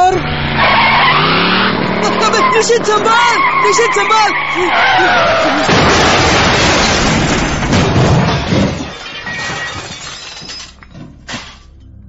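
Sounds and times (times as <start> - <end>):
car crash smash: 5.5 - 11.7
glass shattering: 5.5 - 11.8
scattered debris clatter: 5.6 - 11.8.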